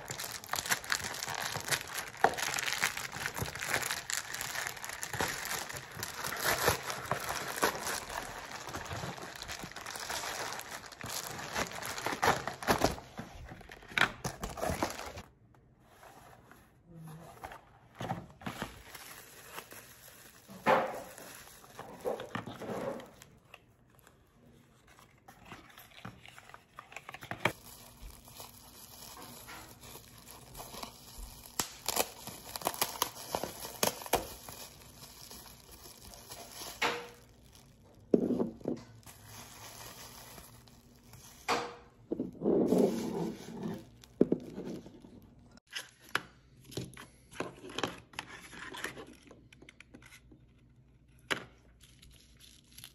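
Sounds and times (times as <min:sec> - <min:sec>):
bubble wrap crinkling: 0:00.0 - 0:15.3, 0:18.5 - 0:24.2, 0:24.8 - 0:41.8, 0:42.6 - 0:45.7.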